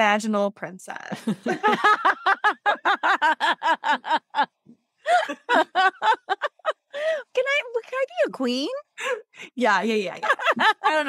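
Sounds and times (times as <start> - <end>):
woman laughing: 1.2 - 4.5, 5.1 - 7.4, 10.1 - 11.0.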